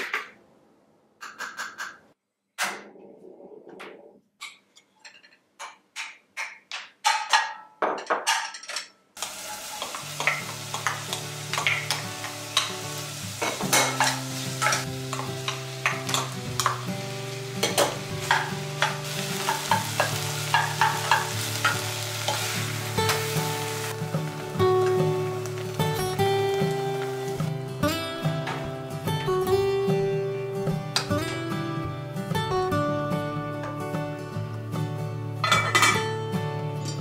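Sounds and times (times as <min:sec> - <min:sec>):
food sizzling in a saucepan: 0:09.2 - 0:27.9.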